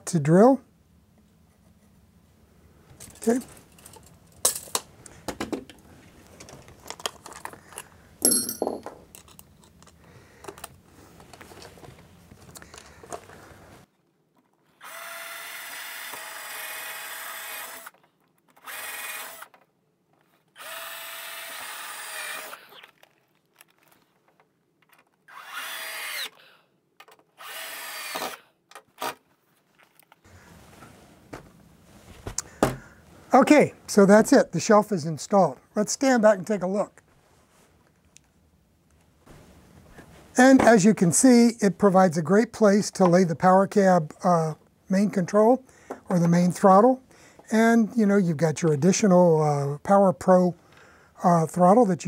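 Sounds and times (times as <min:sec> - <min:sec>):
cordless drill boring into wood: 0:14.8 - 0:18.0, 0:18.6 - 0:19.5, 0:20.6 - 0:23.0, 0:25.3 - 0:26.6, 0:27.4 - 0:28.6.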